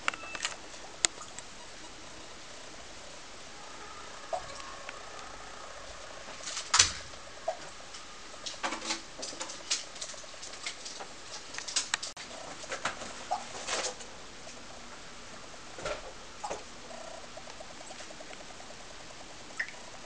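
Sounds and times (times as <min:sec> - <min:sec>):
water dripping into containers: 0:19.5 - 0:19.9.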